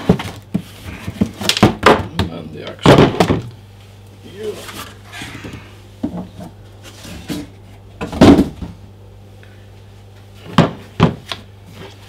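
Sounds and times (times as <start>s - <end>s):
objects knocking when set down: 7.2s - 8.8s.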